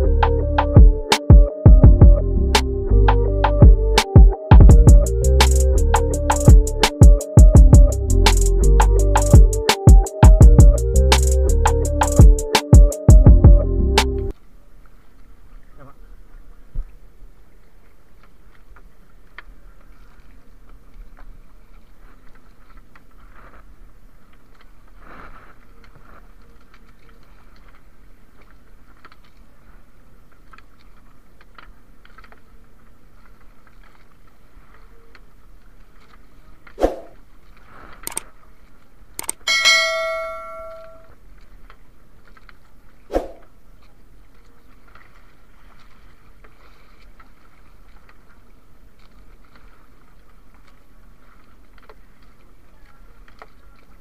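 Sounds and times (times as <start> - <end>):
metallic clang: 39.5 - 41.1
water lapping around canoe: 41.9 - 52.7.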